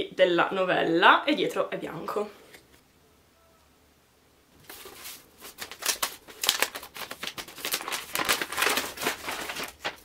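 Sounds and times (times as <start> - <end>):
paper crinkling and tearing: 4.6 - 10.0.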